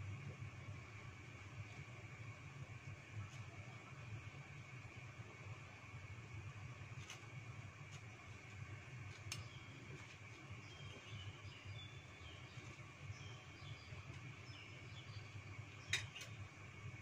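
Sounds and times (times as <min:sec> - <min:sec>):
gas burner rumble: 0:00.0 - 0:17.0
water boiling in pot: 0:00.0 - 0:17.0
small birds chirping: 0:09.2 - 0:16.3.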